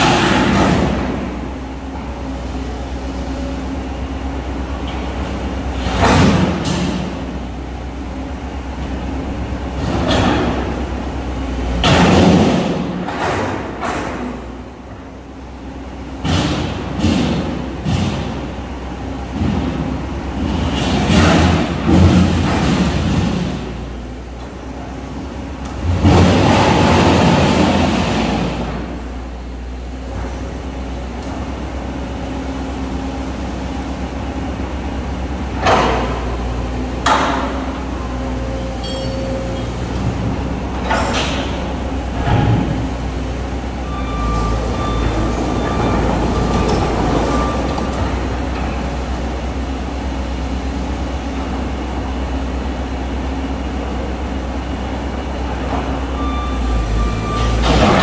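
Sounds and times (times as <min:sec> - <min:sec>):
excavator diesel engine running: 0:00.0 - 0:58.0
straining metal squeals: 0:43.4 - 0:48.6, 0:56.0 - 0:57.8.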